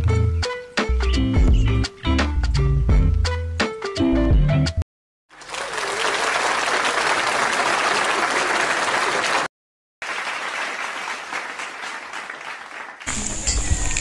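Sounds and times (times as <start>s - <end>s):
crowd applauding: 5.3s - 14.0s
steady outdoor noise: 13.1s - 14.0s.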